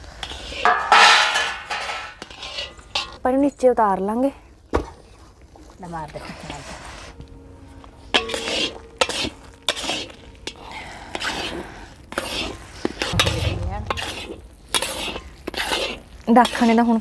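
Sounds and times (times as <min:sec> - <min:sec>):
metal spatula scraping a metal pan: 0:00.0 - 0:03.2, 0:08.1 - 0:17.0
faint sizzle of cooking food: 0:00.0 - 0:13.1, 0:14.7 - 0:17.0.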